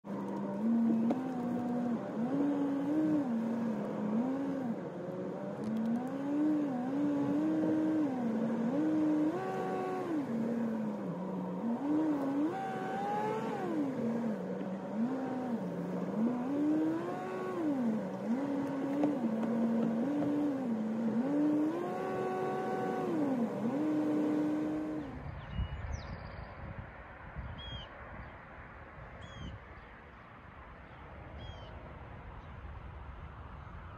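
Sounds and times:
car engine revving: 0.0s - 25.2s
road noise: 0.0s - 33.9s.

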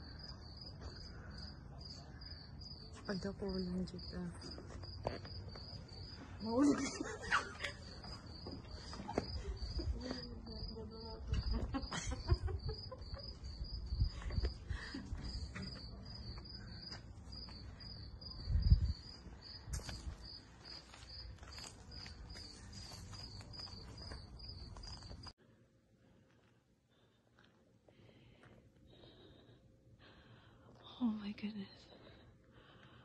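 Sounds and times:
cricket chirping: 0.0s - 25.3s.

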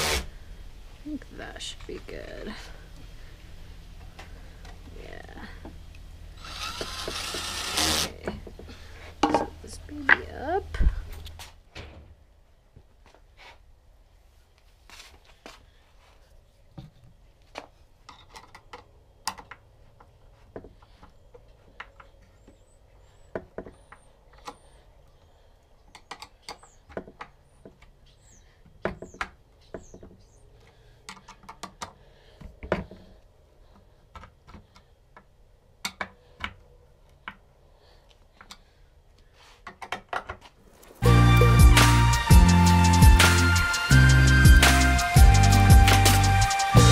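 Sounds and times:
wooden pieces clicking and knocking: 31.0s - 32.0s
music: 41.0s - 46.9s.

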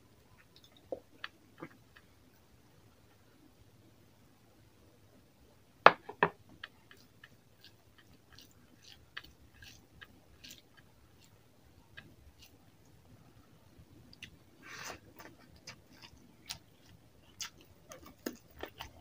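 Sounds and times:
wet chewing clicks: 6.6s - 13.0s, 15.0s - 19.0s.

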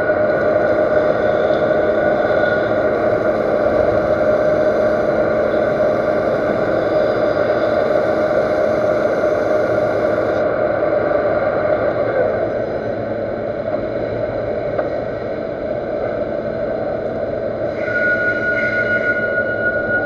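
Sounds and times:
metal lathe running: 0.0s - 10.6s, 15.1s - 20.0s.

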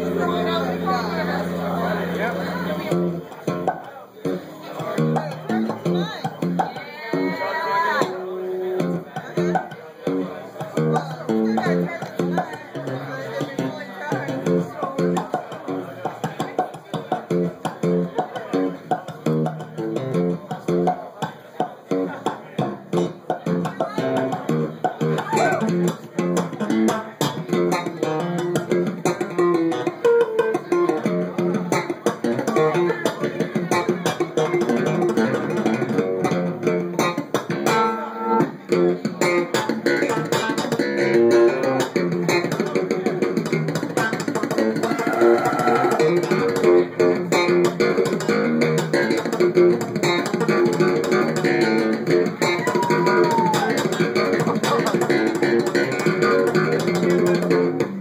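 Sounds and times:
electric bass solo: 0.0s - 3.7s, 23.0s - 58.0s.

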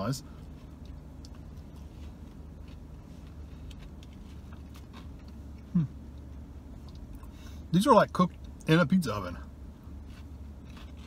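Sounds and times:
low hum in a car cabin: 0.0s - 11.0s
man chewing food: 0.3s - 7.6s, 9.8s - 11.0s
person humming mm: 5.7s - 6.0s.

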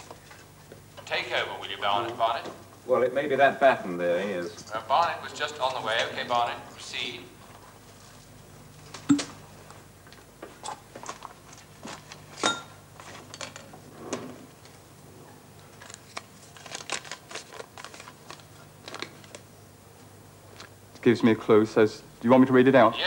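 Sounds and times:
faint steady hum: 0.0s - 23.0s
paper rustling: 15.7s - 19.4s.

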